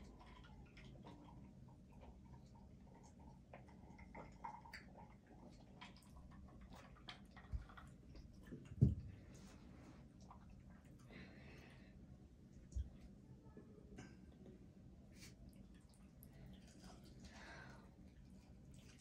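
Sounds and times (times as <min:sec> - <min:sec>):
soft low thump: 0:08.8 - 0:09.2.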